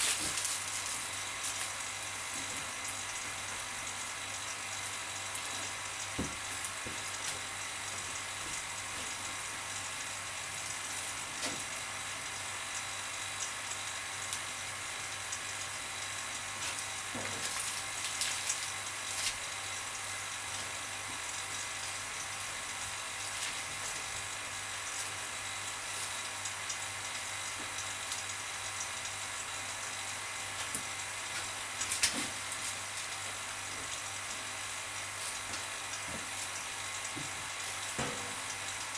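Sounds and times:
plastic film crinkling and clicking: 0:00.0 - 0:01.8, 0:17.2 - 0:19.4
vacuum pump hissing and humming: 0:00.0 - 0:38.9.

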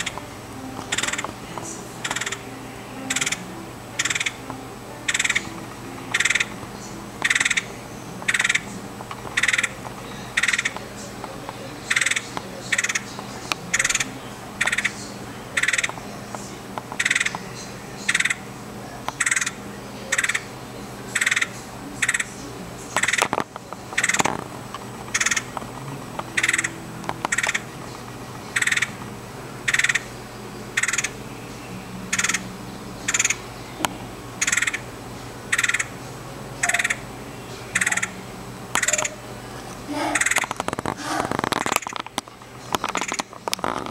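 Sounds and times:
woodpecker calling: 0:00.0 - 0:00.3, 0:00.9 - 0:18.5, 0:19.1 - 0:24.4, 0:25.0 - 0:43.9.

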